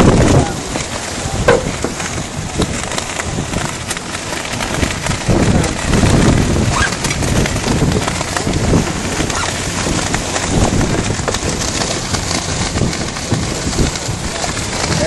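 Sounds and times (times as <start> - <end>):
water splashing along hull: 0.0 - 15.0
wind buffeting microphone: 0.0 - 15.0.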